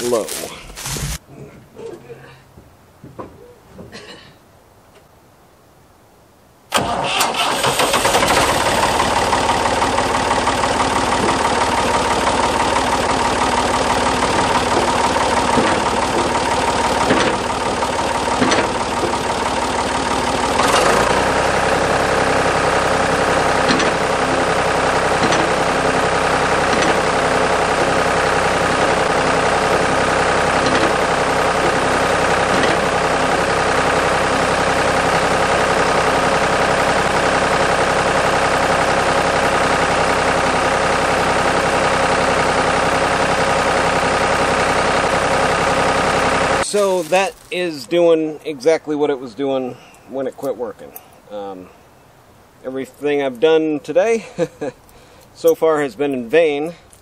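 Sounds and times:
backhoe engine running: 0.0s - 1.2s, 6.7s - 49.0s.

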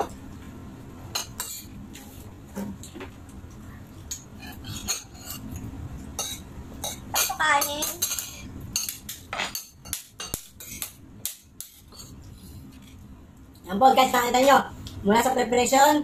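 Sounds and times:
spoons clinking against plates: 6.2s - 12.2s.

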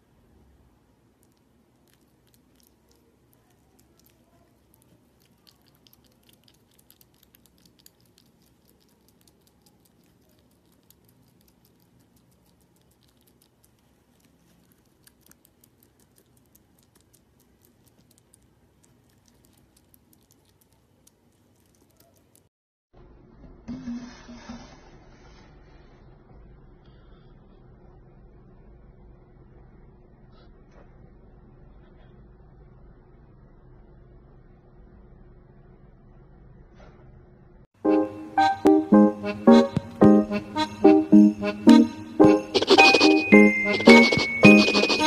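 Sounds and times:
hedgehog chewing wet smacking: 1.1s - 22.5s.

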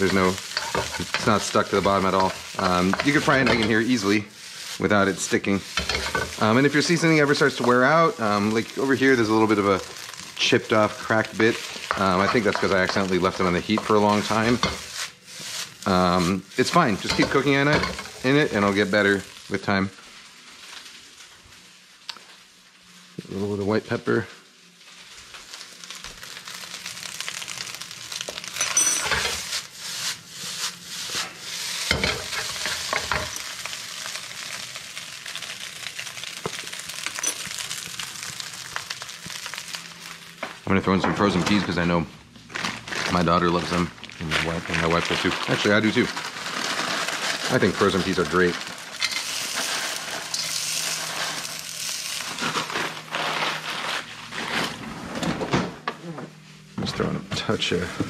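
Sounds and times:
spatula scraping and knocking pan: 0.0s - 4.1s, 5.7s - 6.4s
rice sizzling in a wok: 0.0s - 54.8s
plastic bag crinkling: 6.3s - 14.6s, 33.3s - 40.4s, 42.4s - 55.0s
peas poured into wok: 44.7s - 53.7s.

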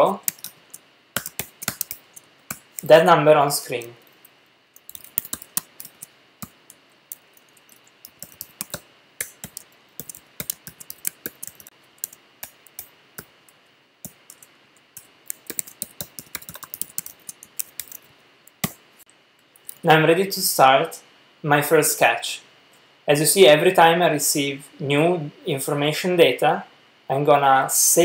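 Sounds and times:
computer keyboard typing: 0.2s - 2.9s, 4.8s - 13.3s, 14.0s - 18.8s.

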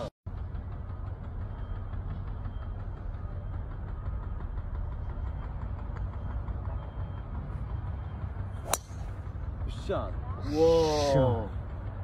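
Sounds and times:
steady low rumble: 0.0s - 12.0s
golf ball struck by driver: 8.6s - 9.2s.

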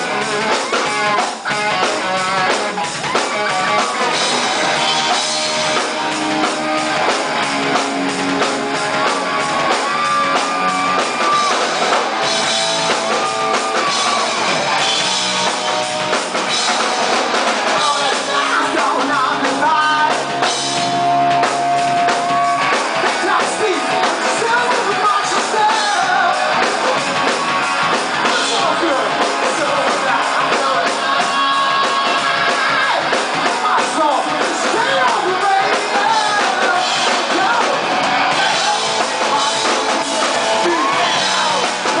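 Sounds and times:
drums: 0.0s - 42.0s
electric guitar: 0.0s - 42.0s
man singing into a microphone: 17.7s - 20.5s, 23.2s - 26.7s, 28.2s - 42.0s.

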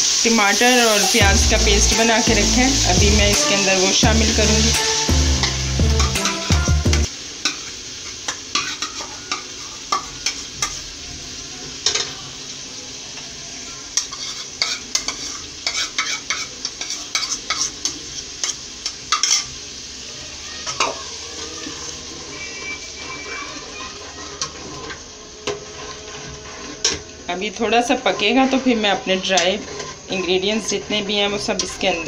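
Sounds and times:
paste sizzling in hot oil: 0.0s - 32.0s
metal spoon scraping bowl: 21.7s - 32.0s
steel ladle stirring in pot: 21.7s - 32.0s.

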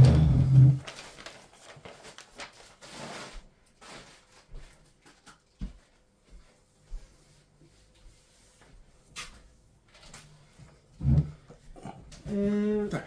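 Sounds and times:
paper rustling: 0.0s - 5.8s.

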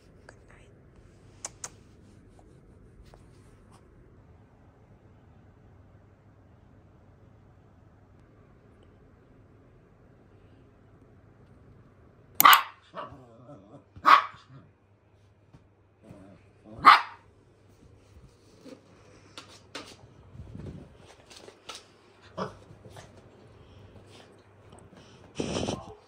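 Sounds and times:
small dog barking: 12.4s - 13.2s, 14.0s - 14.7s, 16.7s - 17.3s.

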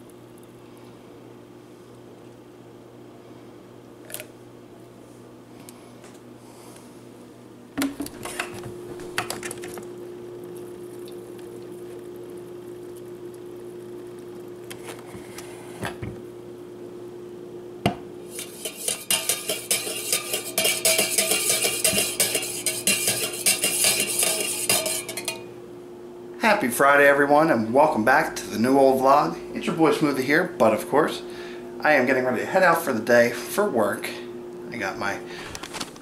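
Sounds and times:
steady hum: 0.0s - 36.0s
spoon clinking in a metal mug: 18.4s - 25.5s.

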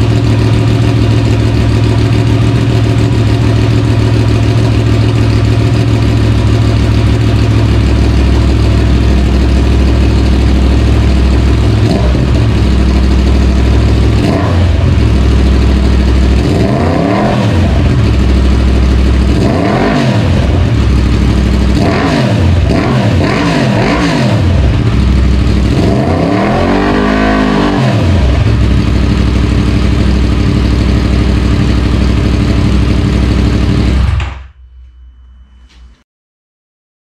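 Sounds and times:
motorcycle engine idling and revving: 0.0s - 34.4s.

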